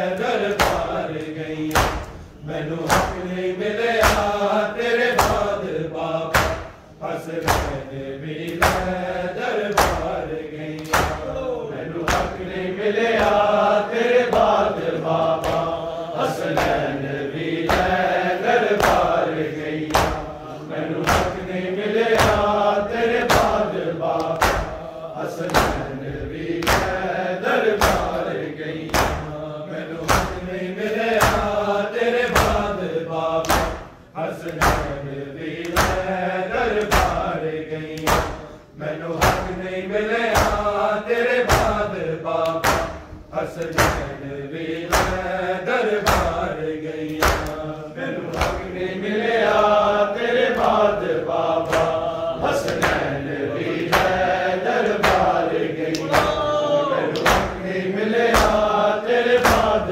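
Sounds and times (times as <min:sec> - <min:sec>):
men chanting a lament: 0:00.0 - 0:59.9
chest-beating slaps: 0:00.2 - 0:39.7, 0:40.3 - 0:59.9.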